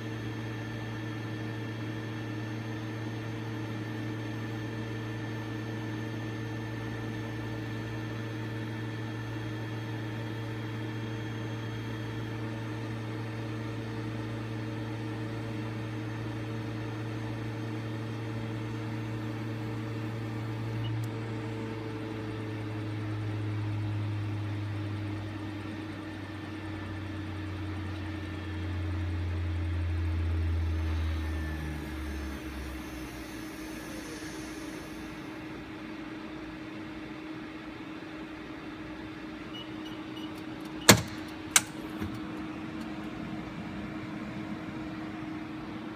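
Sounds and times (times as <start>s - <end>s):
centrifuge humming: 40.0s - 45.9s.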